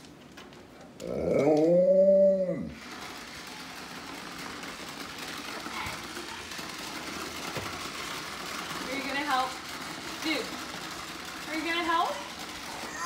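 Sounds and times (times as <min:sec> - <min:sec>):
dog howling: 0:01.0 - 0:02.8
toy vacuum whirring: 0:01.0 - 0:13.0.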